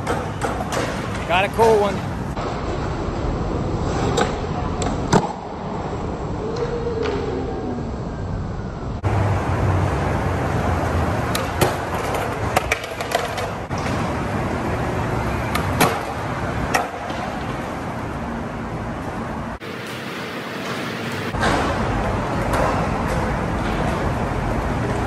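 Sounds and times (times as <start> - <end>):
skateboards clacking on ground: 0.0 - 3.0, 11.1 - 18.0, 20.6 - 25.0
skateboard wheels rolling on concrete: 0.0 - 25.0.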